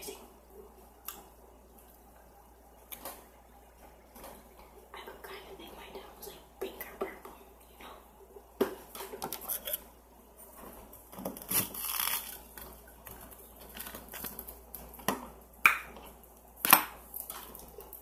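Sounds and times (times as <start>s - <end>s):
ice clicking and crackling: 11.2s - 15.1s.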